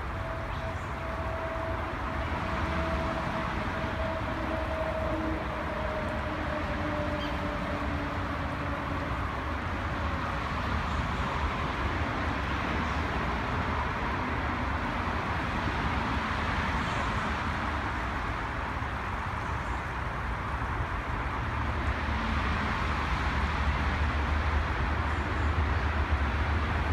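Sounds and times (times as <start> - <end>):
road traffic rumble: 0.0 - 26.9.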